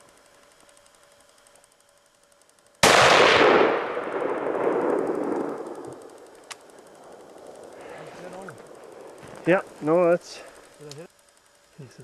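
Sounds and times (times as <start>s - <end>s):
rifle shot with rolling echo: 2.8s - 8.0s.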